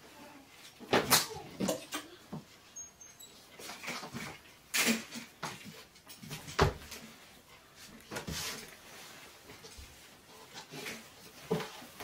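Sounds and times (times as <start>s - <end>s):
fabric and cushions rustling: 3.4s - 12.0s.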